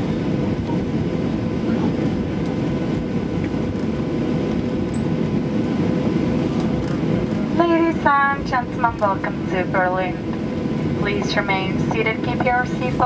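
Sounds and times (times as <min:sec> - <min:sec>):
aircraft cabin rumble: 0:00.0 - 0:13.0
faint steady hum: 0:04.9 - 0:13.0.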